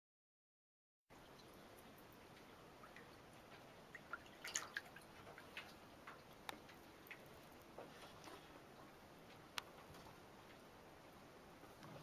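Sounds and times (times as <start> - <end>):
small water drips and splashes: 1.1 - 9.8.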